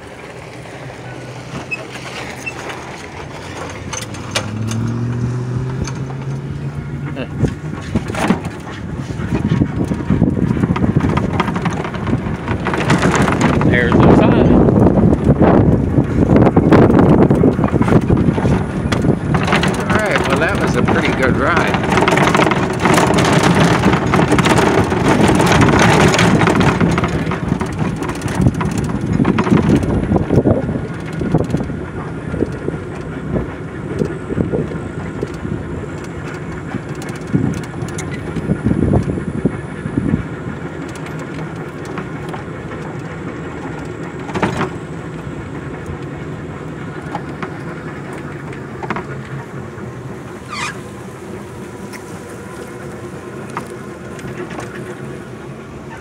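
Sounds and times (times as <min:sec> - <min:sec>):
tyres on gravel: 0:00.0 - 0:56.0
knocks over bumps: 0:01.4 - 0:49.6
wind noise on microphone: 0:03.2 - 0:49.2.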